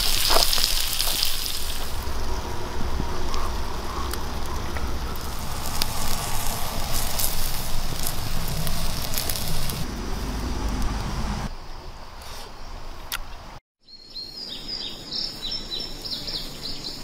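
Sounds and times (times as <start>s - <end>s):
food sizzling and bubbling: 0.0s - 11.4s.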